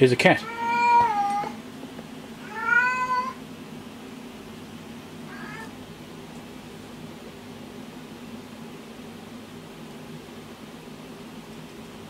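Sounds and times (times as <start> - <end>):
cat meowing: 0.4 - 1.6, 2.4 - 3.4, 5.3 - 5.8.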